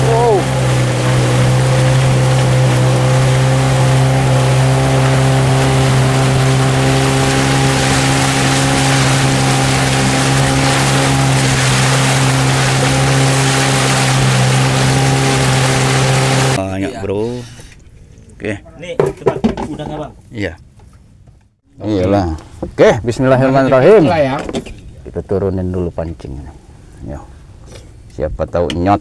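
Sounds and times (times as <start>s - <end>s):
water rushing: 0.0s - 17.4s
motorboat engine humming: 0.0s - 25.4s
wind: 0.0s - 29.0s.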